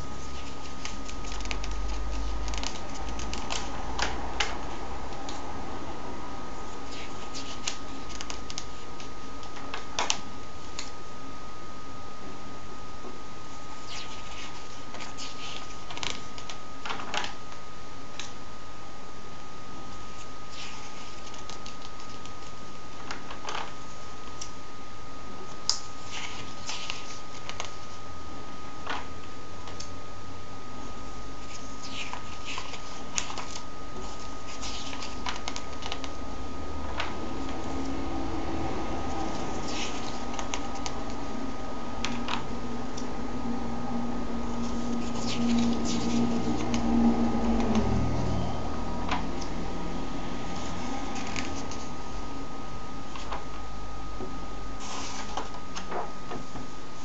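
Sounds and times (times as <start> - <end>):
paper rustling: 0.0 - 4.6, 6.7 - 10.2, 13.8 - 17.4, 20.1 - 24.1, 25.7 - 28.0, 31.4 - 36.2, 39.1 - 41.1, 44.6 - 46.8, 50.6 - 52.0, 54.8 - 56.1
low hum and hiss: 0.0 - 57.0
comic book pages turning: 0.2 - 4.5, 6.8 - 9.1, 20.5 - 23.7, 25.9 - 28.0, 31.4 - 36.1, 39.1 - 41.1, 44.6 - 46.8, 50.6 - 51.9, 54.8 - 56.0.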